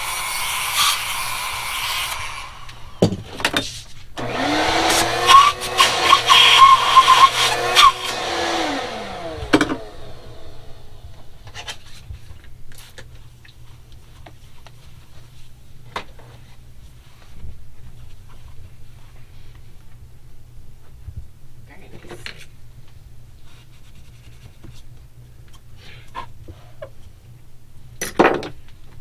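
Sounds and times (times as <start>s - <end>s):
hand-held power tool running: 0.0s - 3.0s, 4.2s - 11.3s
shop vacuum whining: 0.0s - 3.3s, 4.2s - 11.7s
handling and rubbing sounds: 11.2s - 20.0s, 23.3s - 27.2s.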